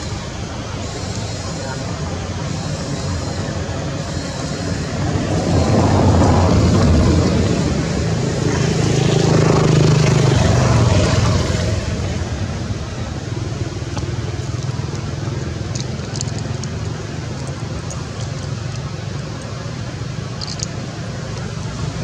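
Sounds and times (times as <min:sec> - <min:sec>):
vehicle engine rumble: 0:00.0 - 0:22.0
faint high ticks: 0:20.4 - 0:20.8.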